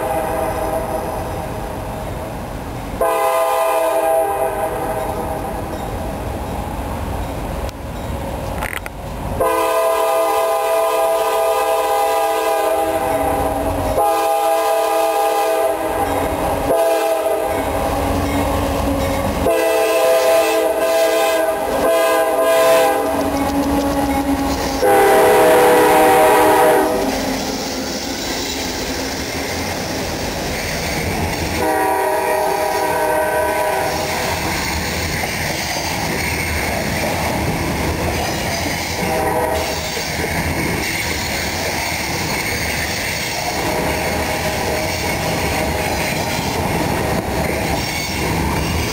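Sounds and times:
locomotive air horn blasts: 0.0 - 1.1, 3.0 - 5.3, 9.4 - 18.2, 18.9 - 27.7, 31.6 - 34.4, 39.0 - 39.8
train cars rumbling and clattering: 0.0 - 48.9.

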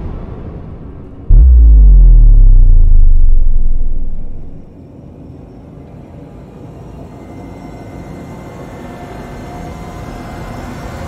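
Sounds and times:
rumbling riser sound effect: 1.3 - 4.7.

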